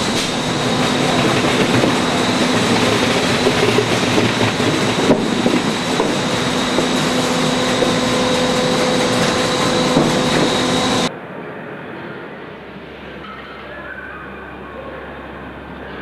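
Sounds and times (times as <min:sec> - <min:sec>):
dull machine noise: 0:00.0 - 0:11.1
machine rattling with whine: 0:00.0 - 0:11.1.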